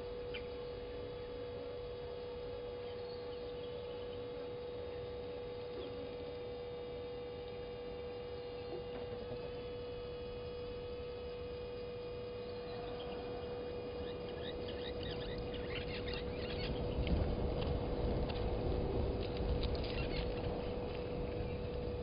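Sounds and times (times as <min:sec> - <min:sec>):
steady electrical hum: 0:00.0 - 0:22.0
birds chirping: 0:12.4 - 0:17.1, 0:19.8 - 0:21.6.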